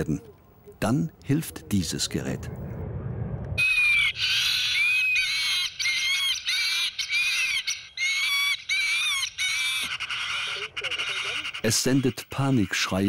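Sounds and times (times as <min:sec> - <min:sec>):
bird distress calls from loudspeaker: 0:03.6 - 0:13.0.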